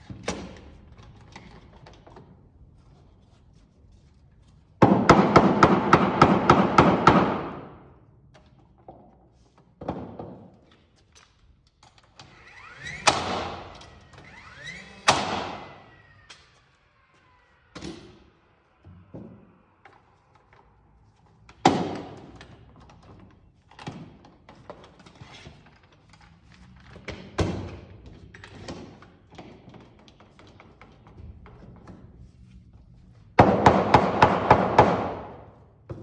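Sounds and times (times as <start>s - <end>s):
loud sharp echoing bangs: 4.8s - 7.8s.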